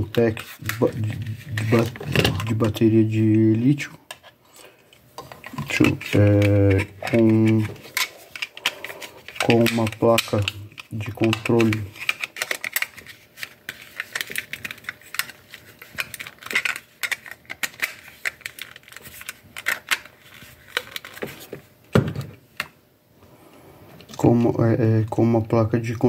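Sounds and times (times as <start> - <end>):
plastic battery pack rattling: 0.6 - 2.8, 5.2 - 21.6.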